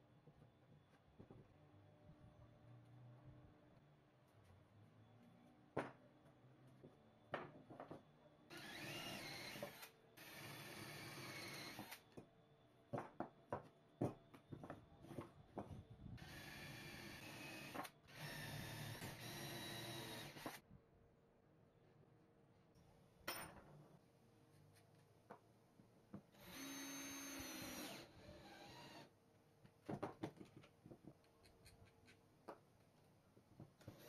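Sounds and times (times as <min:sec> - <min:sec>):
cordless drill boring into wood: 0:08.5 - 0:12.0, 0:16.2 - 0:20.6, 0:26.4 - 0:29.1.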